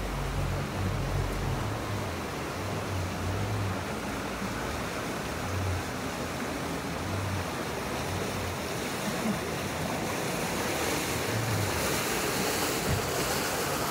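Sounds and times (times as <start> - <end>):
river water rushing along hull: 0.0 - 13.9
wind buffeting microphone: 10.4 - 13.9.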